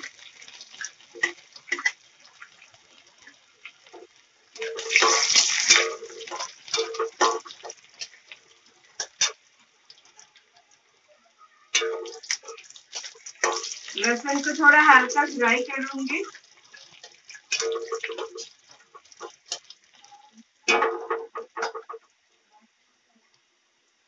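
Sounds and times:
spatula scraping and stirring: 0.0s - 3.0s, 3.6s - 10.4s, 11.8s - 20.0s
garlic sizzling in hot oil: 0.0s - 11.1s, 11.7s - 22.2s.

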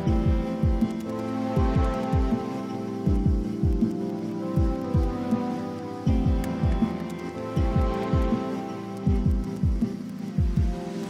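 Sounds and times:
held synth chords: 0.0s - 11.0s
deep kick drum: 0.1s - 1.0s, 1.6s - 2.4s, 3.1s - 4.0s, 4.6s - 5.3s, 6.1s - 7.0s, 7.6s - 8.4s, 9.1s - 10.8s.

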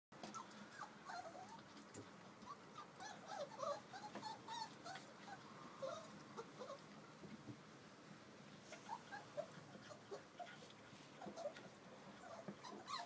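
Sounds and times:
puppies squeaking and whimpering: 0.2s - 1.8s, 2.4s - 6.9s, 8.8s - 13.0s.

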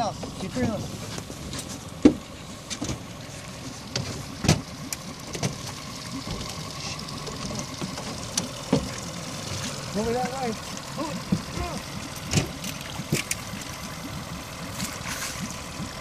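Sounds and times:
outboard motor idling: 0.0s - 16.0s
sharp knocks and clicks: 7.4s - 9.0s.

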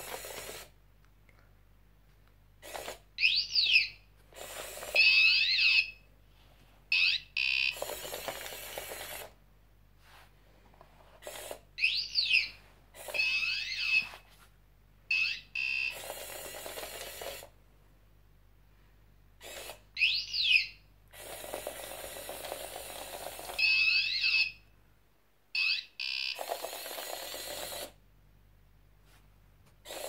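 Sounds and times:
small gear motors whirring: 0.0s - 0.7s, 7.7s - 9.3s, 26.4s - 28.0s.

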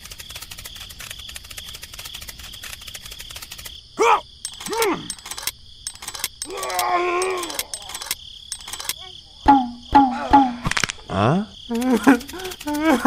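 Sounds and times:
crickets chirring: 0.0s - 13.0s
short voice-like cries: 4.0s - 5.1s, 6.4s - 7.8s.

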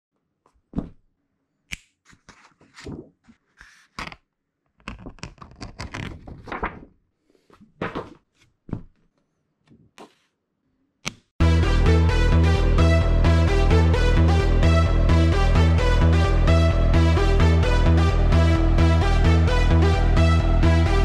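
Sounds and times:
paper rustling and sliding: 2.1s - 4.2s, 5.6s - 8.5s.

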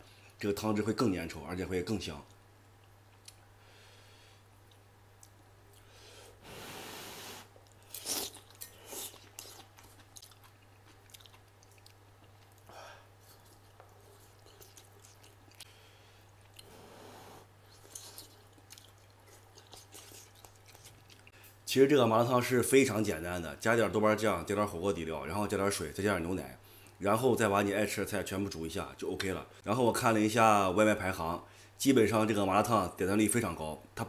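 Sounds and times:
faint low hum: 0.0s - 34.0s
wet chewing and mouth smacks: 7.6s - 15.7s, 17.6s - 21.3s.

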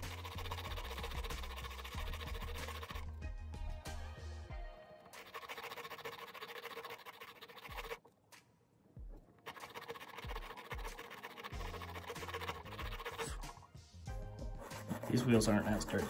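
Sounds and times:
metal wheels scratching on rubber block: 0.0s - 3.0s, 5.2s - 8.0s, 9.4s - 13.5s, 14.6s - 16.0s.

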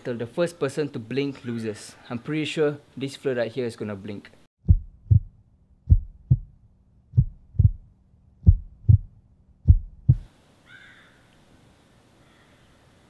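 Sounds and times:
heartbeat thumps: 4.6s - 10.3s.

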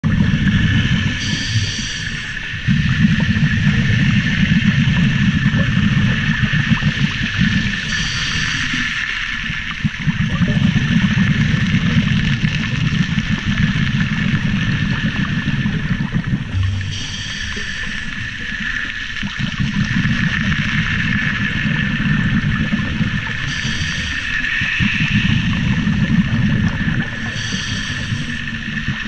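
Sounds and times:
underwater water surging rumble: 0.0s - 29.0s
steady hiss: 1.1s - 4.9s, 6.2s - 9.7s, 16.6s - 21.4s, 23.1s - 29.0s.

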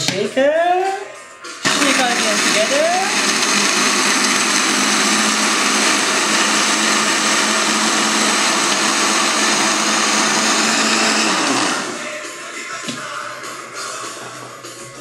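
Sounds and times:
electric blender whirring: 1.6s - 12.2s.

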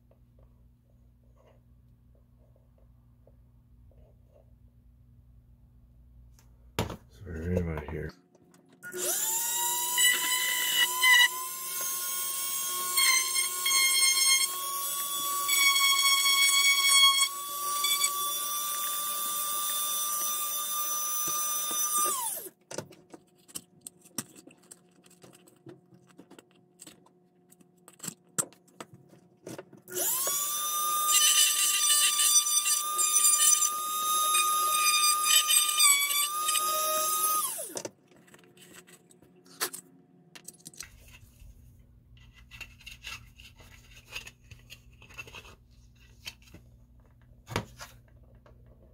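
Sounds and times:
rotary tool motor whine: 8.8s - 22.5s, 29.9s - 37.8s.

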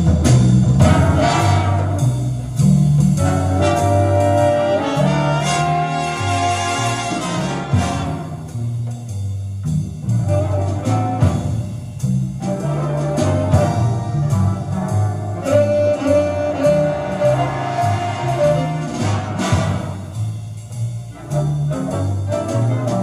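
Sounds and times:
instrumental jazz music on loudspeakers: 0.0s - 23.0s.

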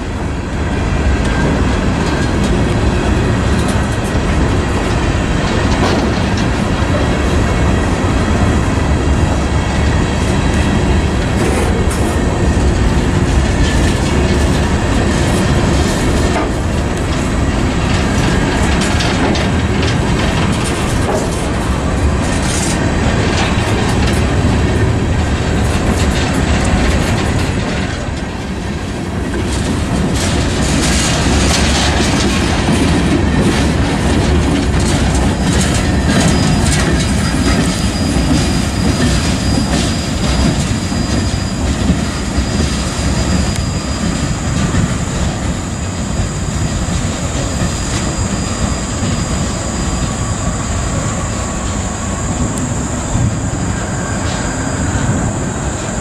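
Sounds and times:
train cars rumbling: 0.0s - 56.0s
wheels clacking over rail joints: 0.0s - 56.0s.

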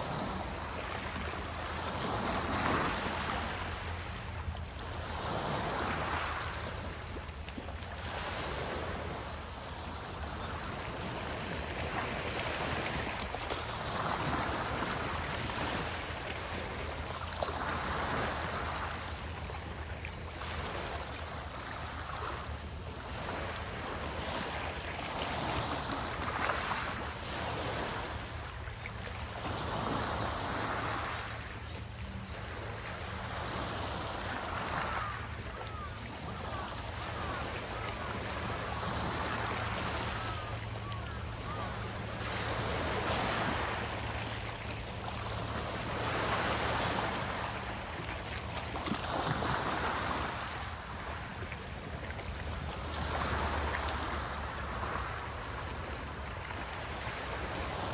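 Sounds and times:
small waves washing onto shore: 0.0s - 57.9s.

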